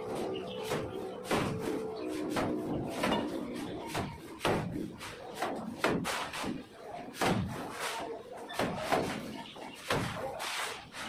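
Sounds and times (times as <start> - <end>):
shovels scraping mortar on concrete: 2.0 - 11.0
mortar slapped onto brick wall: 3.9 - 7.8, 8.5 - 10.2.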